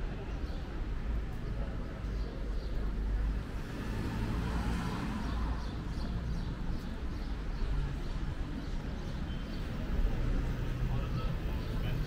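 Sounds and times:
passing traffic rumble: 0.0s - 12.0s
people talking: 9.8s - 12.0s.

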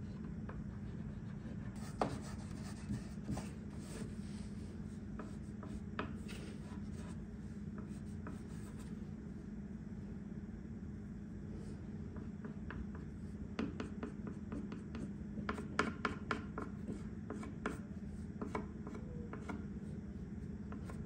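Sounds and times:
steady low hum: 0.0s - 21.0s
marker scratching on wood: 0.9s - 4.2s.

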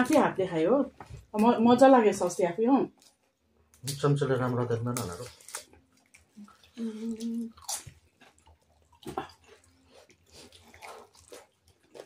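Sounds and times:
chewing and lip smacks: 5.4s - 12.0s.

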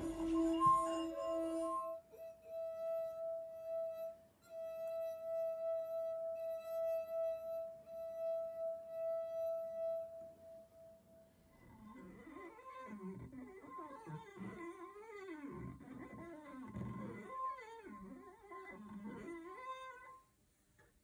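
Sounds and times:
wine glass ringing tone: 0.0s - 2.0s.

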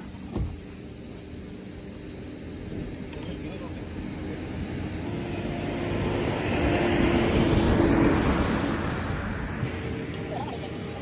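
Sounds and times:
vehicle passing by: 3.9s - 11.0s.

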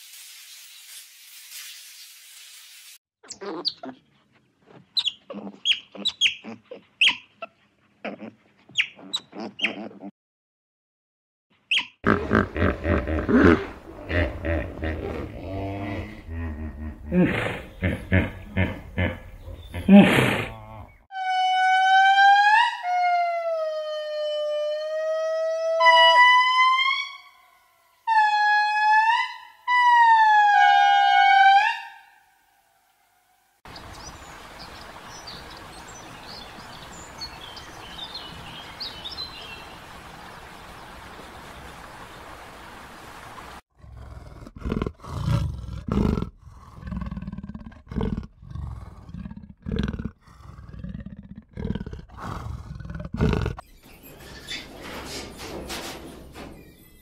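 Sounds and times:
deep rhythmic animal grunts: 12.0s - 21.0s, 43.7s - 53.6s.

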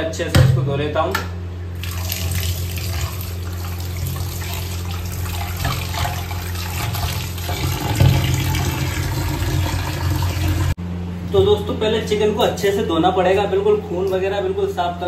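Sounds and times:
steady low hum: 0.0s - 15.0s
tap water running into bowl: 1.8s - 10.8s.

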